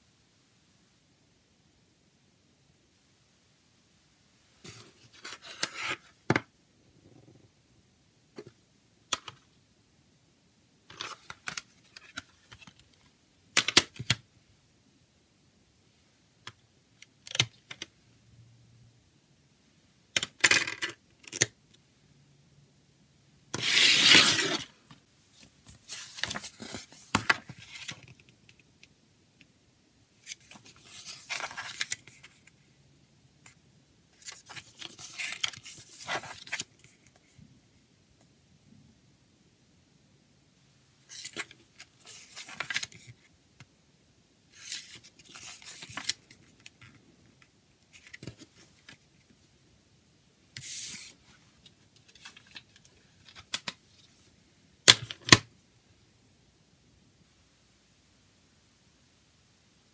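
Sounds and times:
paper booklet scraping out: 23.6 - 24.7
paper pages rustling: 25.4 - 28.2, 30.2 - 32.4, 34.2 - 36.8, 41.1 - 43.2, 44.6 - 46.5.

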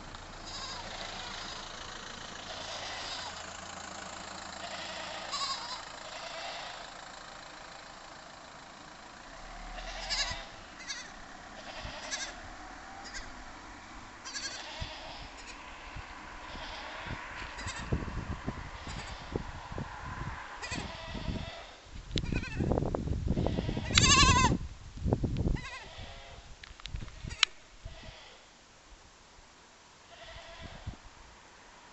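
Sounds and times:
low rumbling noise: 0.0 - 26.0
goat kid bleating: 0.4 - 1.7, 2.4 - 3.5, 4.5 - 6.9, 9.6 - 12.4, 13.0 - 13.4, 14.2 - 15.6, 16.4 - 17.9, 18.8 - 19.3, 20.6 - 22.7, 23.4 - 24.6, 25.6 - 26.5, 27.2 - 28.5, 30.1 - 31.0.

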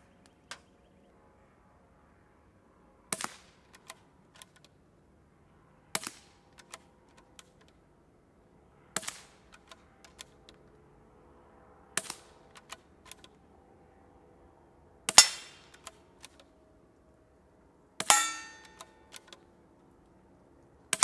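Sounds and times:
rifle bolt clicks: 3.7 - 4.7, 6.0 - 7.8, 12.0 - 13.4, 15.1 - 16.5, 18.6 - 19.4.

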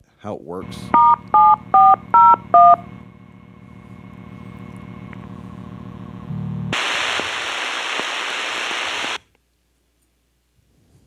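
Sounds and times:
low buzz: 0.6 - 9.2
loud radio static: 3.8 - 9.2
rhythmic tone-like buzz: 5.6 - 6.8.

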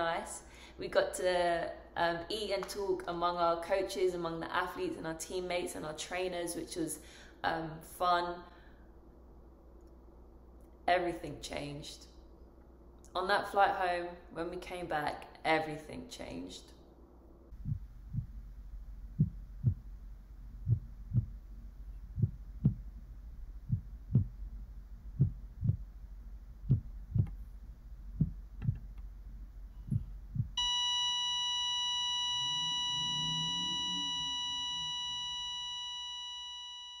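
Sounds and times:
heartbeat double thumps: 17.5 - 30.6
heart monitor flatline beep: 30.0 - 37.0.

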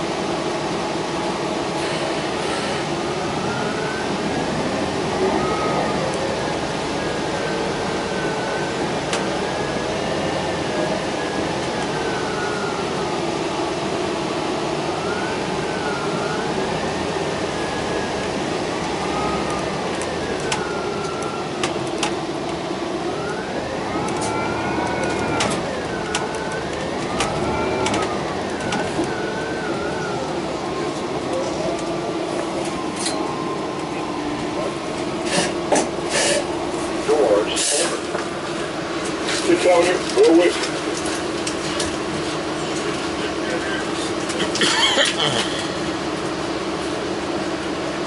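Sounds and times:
bus cabin noise: 0.0 - 48.0
whine rising and falling in pitch: 3.1 - 13.0, 14.9 - 21.7, 23.1 - 34.8.

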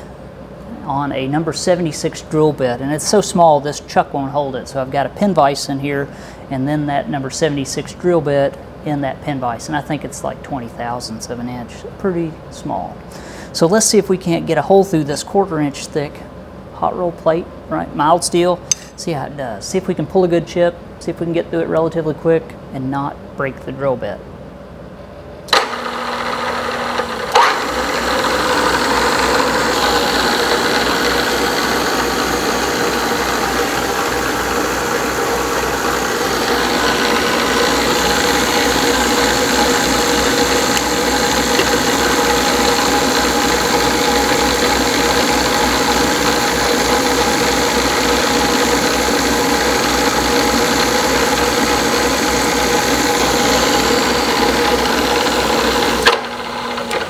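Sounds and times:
drill press drilling steel: 25.5 - 57.0.

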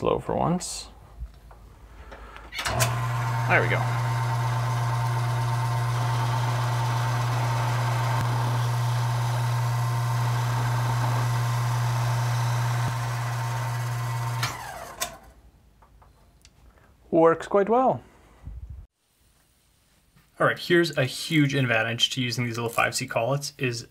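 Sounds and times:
lathe motor humming and whining: 2.7 - 15.2.

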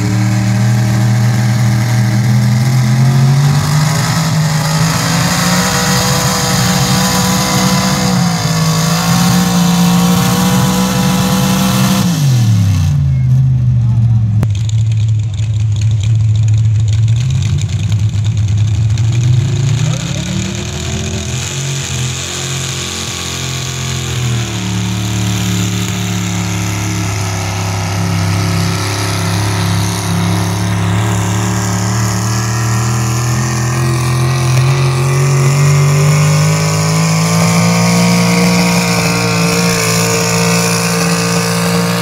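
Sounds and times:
truck engine revving hard: 0.0 - 14.2, 17.2 - 42.0.

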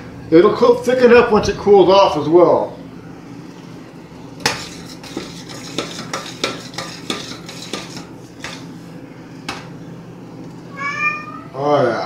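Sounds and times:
spoon scraping metal saucepan: 4.4 - 8.8.

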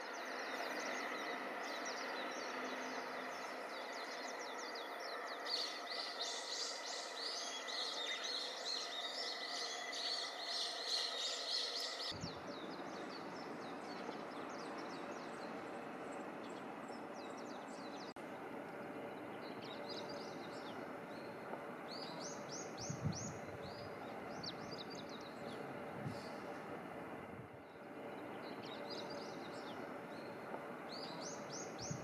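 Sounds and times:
low noise: 0.0 - 32.0
steady high hum: 0.0 - 32.0
small birds chirping: 27.7 - 32.0.

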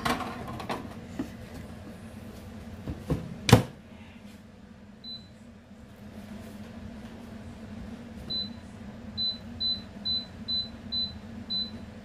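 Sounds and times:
air fryer basket clattering: 0.0 - 1.2.

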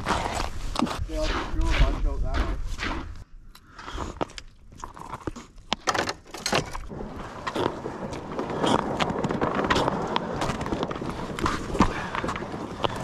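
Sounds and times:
footsteps crunching on snowy ice: 7.4 - 13.0.

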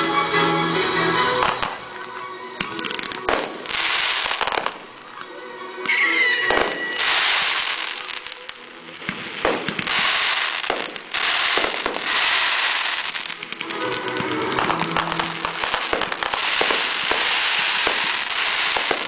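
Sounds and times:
firework crackling: 1.0 - 2.0, 2.6 - 5.2, 5.8 - 19.0
fireworks shells bursting: 2.6 - 5.0, 5.8 - 19.0
rising firework whistle: 5.9 - 8.6, 9.5 - 19.0.

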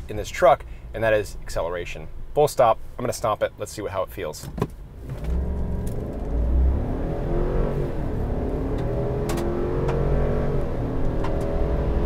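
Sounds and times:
engine accelerating at full throttle: 5.2 - 12.0.

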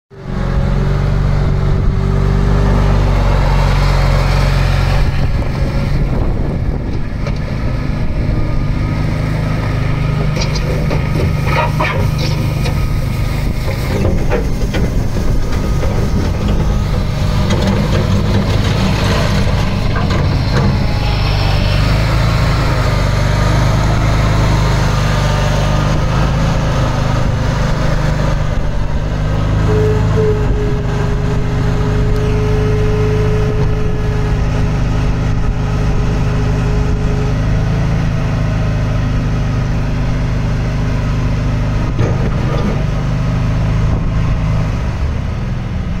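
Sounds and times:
loader engine running: 0.1 - 46.0
steady whine: 0.6 - 42.1.

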